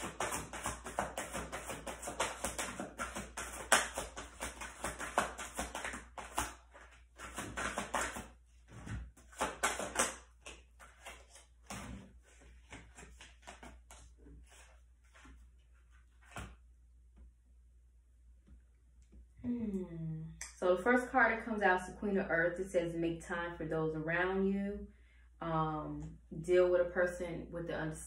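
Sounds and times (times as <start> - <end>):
cards being shuffled: 0.0 - 16.6.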